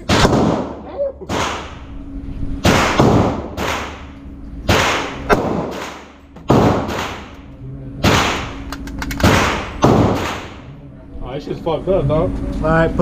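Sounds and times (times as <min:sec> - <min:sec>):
pistol shots echoing indoors: 0:00.0 - 0:01.9, 0:02.6 - 0:07.4, 0:08.0 - 0:10.7.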